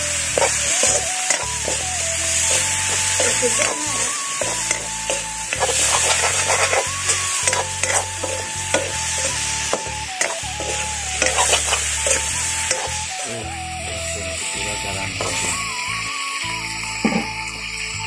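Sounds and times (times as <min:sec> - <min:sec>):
spatula scraping a wok: 0:00.0 - 0:13.3
food sizzling in hot oil: 0:00.0 - 0:18.0.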